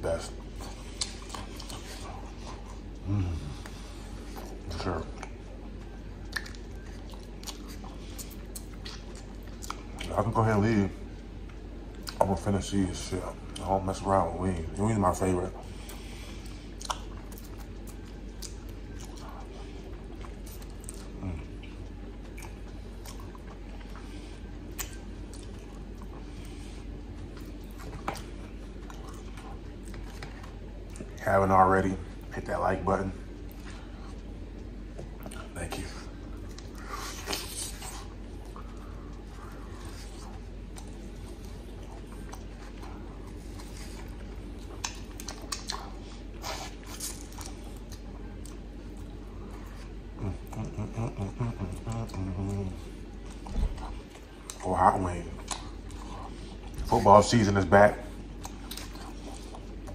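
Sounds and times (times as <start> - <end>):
steady low hum: 0.0 - 59.9
person chewing and sucking: 0.6 - 5.4, 6.2 - 10.1, 15.9 - 31.2, 36.2 - 54.8, 55.4 - 56.8, 58.2 - 59.9
wet lip smacks: 44.8 - 46.0.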